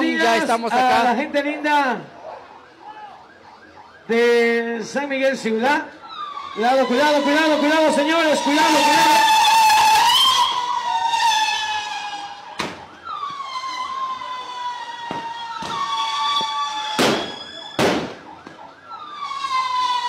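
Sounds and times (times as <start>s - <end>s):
siren wailing: 0.0s - 20.0s
firecracker bangs: 15.0s - 18.3s.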